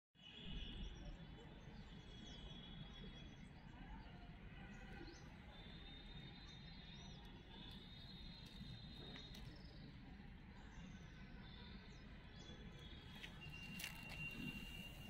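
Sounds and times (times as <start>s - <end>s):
bird chirps: 11.4s - 15.0s.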